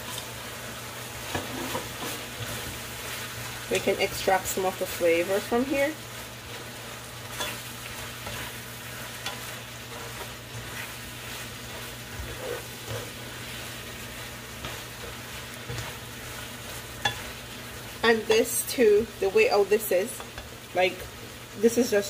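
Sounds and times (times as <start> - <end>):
chicken sizzling in a pot: 0.0 - 22.0
utensil scraping and knocking pot: 9.2 - 13.3.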